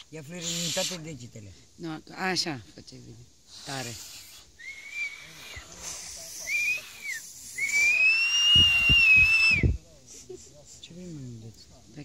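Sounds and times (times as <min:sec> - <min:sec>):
high-pitched hand whistle: 0:06.4 - 0:09.8.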